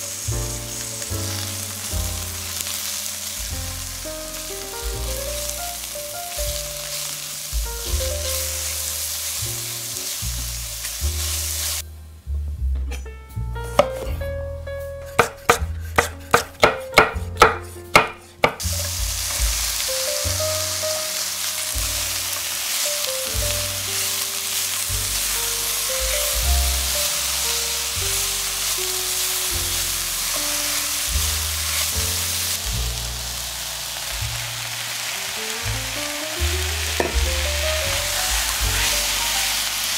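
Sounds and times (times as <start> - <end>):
vegetables sizzling in a pan: 0.0 - 11.8, 15.1 - 39.9
background music: 0.0 - 39.9
knife slicing on cutting board: 15.1 - 18.8.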